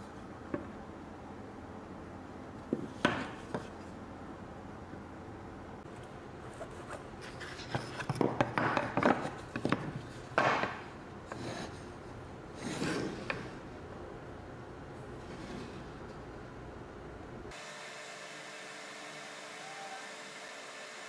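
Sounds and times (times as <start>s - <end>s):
wood-on-wood scraping: 6.4s - 11.9s, 12.6s - 13.6s.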